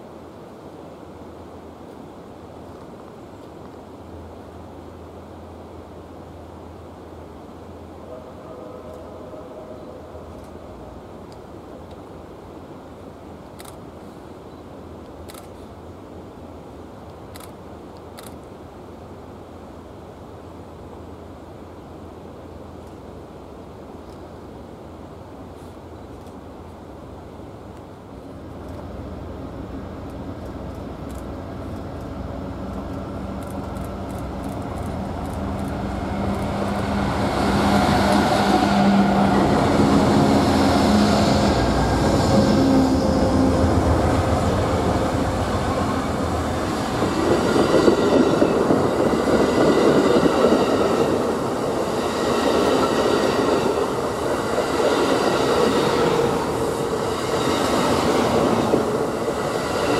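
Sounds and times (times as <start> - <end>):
diesel locomotive engines droning: 3.3 - 59.9
train wheels on rails clatter: 30.0 - 59.9.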